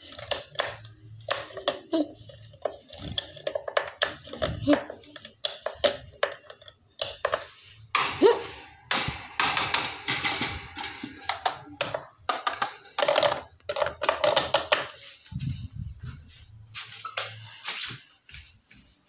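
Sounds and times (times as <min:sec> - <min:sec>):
microphone handling noise: 0:15.3 - 0:16.4.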